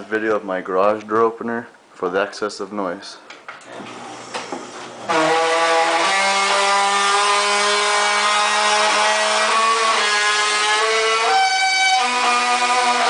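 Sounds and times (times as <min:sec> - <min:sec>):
garage door opener whine: 0:03.7 - 0:13.0.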